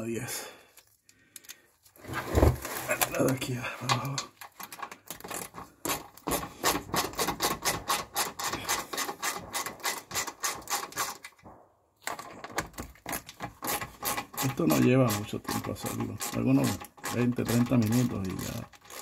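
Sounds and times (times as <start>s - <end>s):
hand ratchet clicking: 4.6s - 11.4s, 13.0s - 19.0s.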